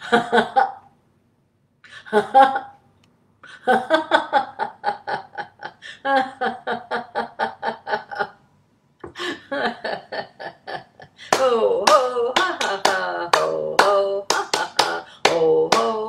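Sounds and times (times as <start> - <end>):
woman laughing rhythmically: 0.0 - 0.9, 1.9 - 2.8, 3.4 - 8.4, 9.0 - 16.0
sharp hand claps: 11.3 - 16.0.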